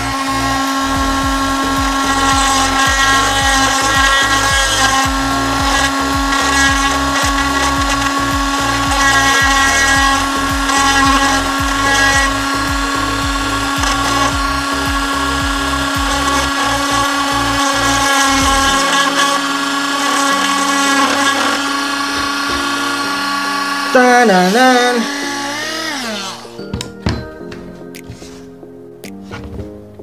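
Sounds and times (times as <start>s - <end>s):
regular low beat: 0.0s - 19.0s
bit scratching particleboard: 0.0s - 22.6s
rotary tool high whine: 0.0s - 26.6s.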